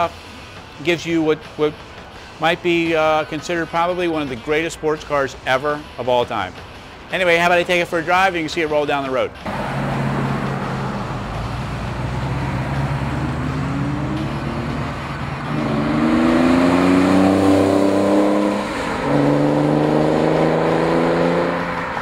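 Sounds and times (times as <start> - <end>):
car engine accelerating: 9.4 - 22.0.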